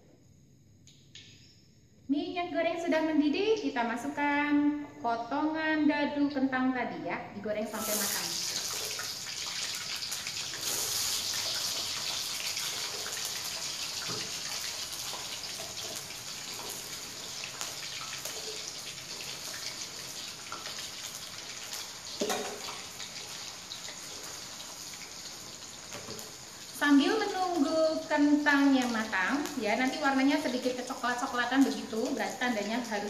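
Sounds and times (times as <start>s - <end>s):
potatoes sizzling in hot oil: 7.6s - 33.0s
spatula knocking wok: 22.2s - 22.9s.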